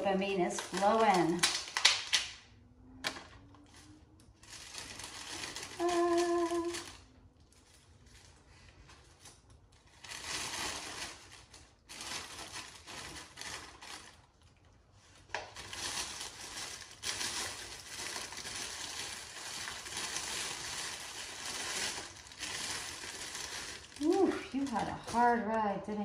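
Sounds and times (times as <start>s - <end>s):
plastic sleeve crinkling: 0.0s - 2.3s, 3.1s - 26.0s.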